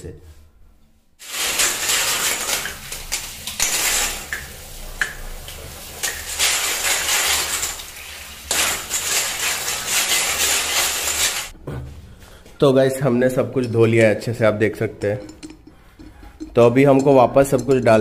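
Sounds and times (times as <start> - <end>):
water running from a tap: 1.2 - 11.5.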